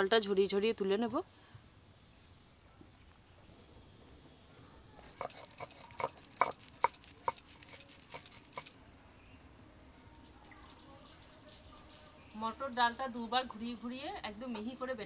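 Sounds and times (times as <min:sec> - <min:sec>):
stone roller crushing peas: 0:05.1 - 0:08.8.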